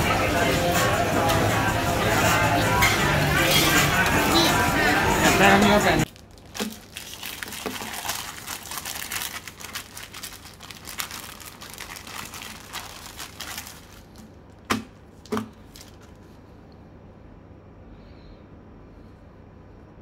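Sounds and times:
plastic bag crinkling: 6.0 - 16.2.

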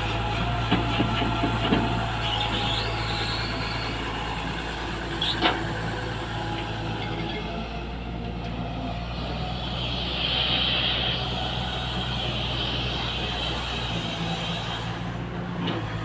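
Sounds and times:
excavator diesel engine running: 0.0 - 16.0
high hydraulic whine: 1.6 - 15.9.

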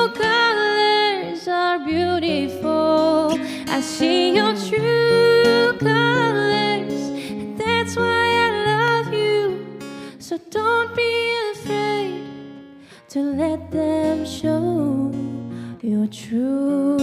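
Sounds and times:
person singing: 0.0 - 12.3, 13.0 - 17.0
acoustic guitar: 0.0 - 17.0.

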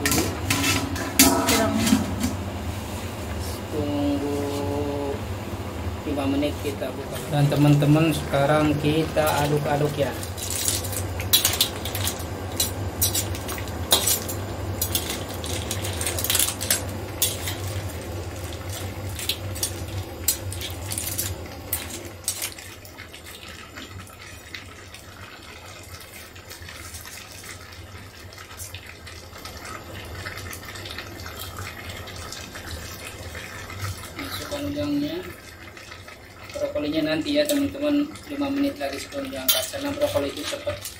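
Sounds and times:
metal spatula scraping a wok: 0.0 - 2.4.

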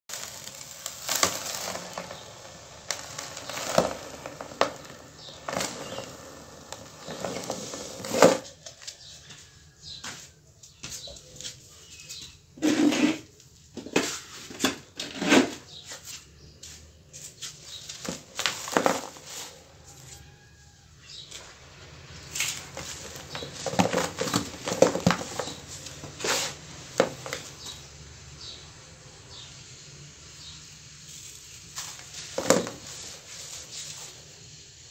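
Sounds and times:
cement chunks falling into tub: 0.1 - 8.4, 18.0 - 19.5, 22.3 - 27.8, 31.8 - 33.2
gritty hiss of falling powder: 0.1 - 8.5, 17.1 - 34.9.

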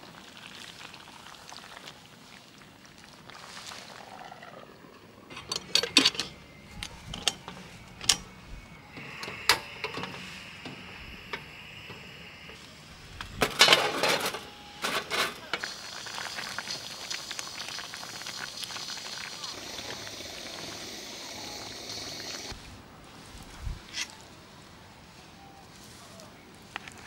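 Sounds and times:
steady high hiss: 5.1 - 26.7.

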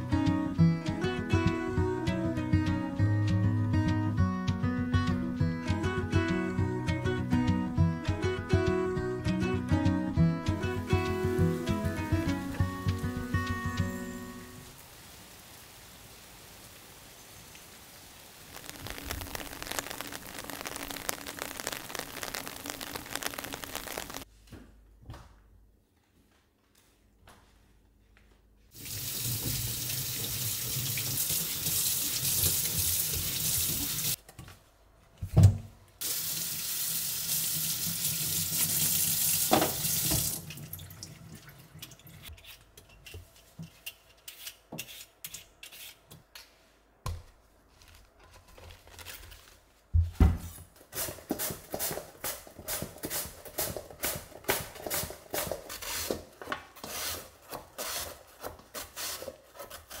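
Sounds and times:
tap running into a metal sink: 39.4 - 40.6
vegetable peeler scraping: 42.2 - 46.0, 51.0 - 60.0.

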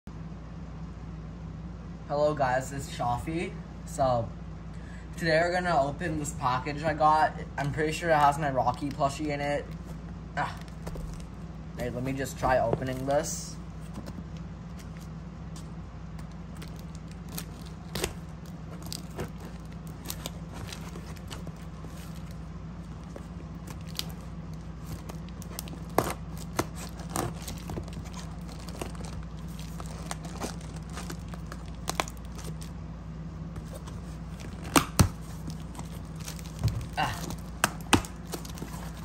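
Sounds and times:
steady low hum: 0.1 - 39.0
cardboard box handled: 10.7 - 15.0
scissors cutting packing tape: 24.9 - 32.6.

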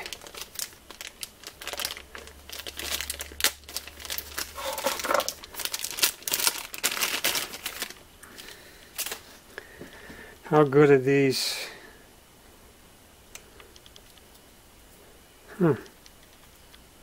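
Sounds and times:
plastic bag crinkling: 0.0 - 9.4.

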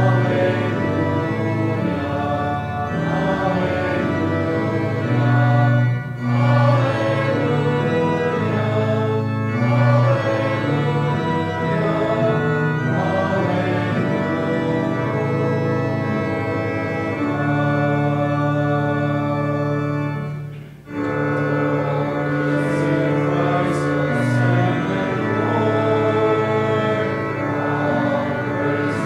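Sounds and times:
organ playing sustained chords: 0.0 - 29.0.

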